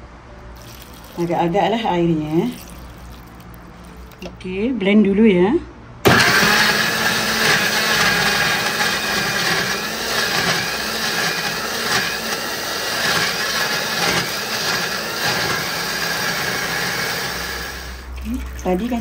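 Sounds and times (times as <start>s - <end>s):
electric blender running: 6.1s - 18.1s.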